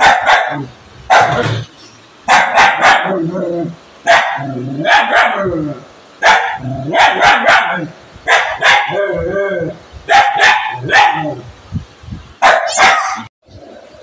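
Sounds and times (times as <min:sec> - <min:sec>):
dog barking: 0:00.0 - 0:01.5, 0:02.3 - 0:03.2, 0:04.0 - 0:05.5, 0:06.2 - 0:09.0, 0:10.1 - 0:11.4, 0:12.4 - 0:13.3.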